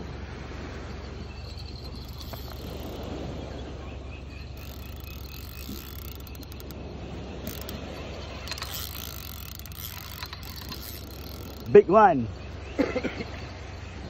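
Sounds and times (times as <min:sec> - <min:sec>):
fishing reel ticking: 0:01.2 - 0:03.2, 0:04.0 - 0:11.9.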